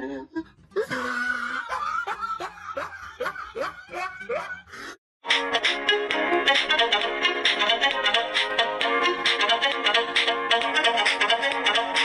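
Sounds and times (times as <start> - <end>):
person snickering: 0.3 - 5.0.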